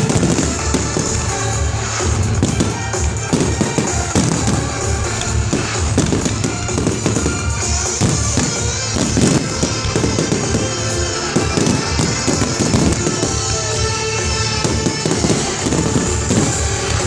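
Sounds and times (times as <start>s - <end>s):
fireworks shells bursting: 0.0s - 17.0s
music playing: 0.0s - 17.0s.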